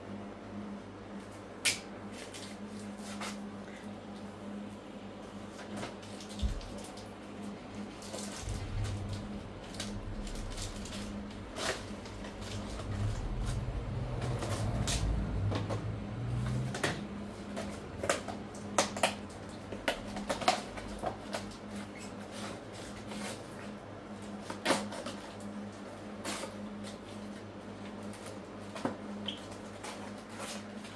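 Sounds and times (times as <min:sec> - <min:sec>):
steady low hum: 0:00.0 - 0:30.9
low rumble: 0:08.0 - 0:17.5.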